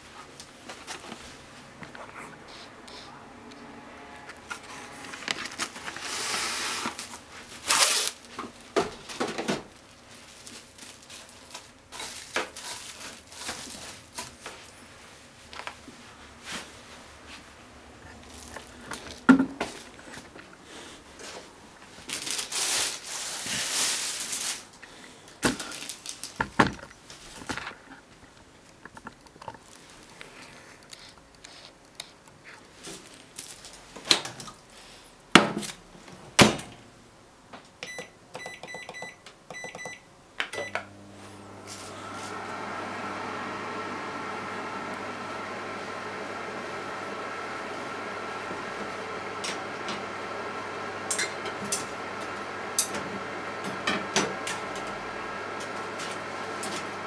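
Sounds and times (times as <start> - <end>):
cling film pulled off roll: 4.3 - 8.4
microwave keypad beeps: 37.8 - 40.8.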